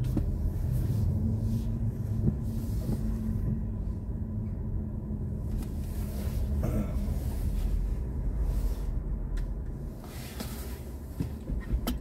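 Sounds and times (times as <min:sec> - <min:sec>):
low car cabin rumble: 0:00.0 - 0:12.0.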